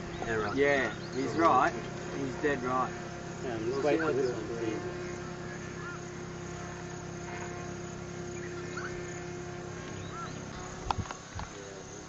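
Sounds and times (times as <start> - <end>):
distant drone engine buzzing: 0.0 - 12.0
faint chirps: 3.4 - 10.8.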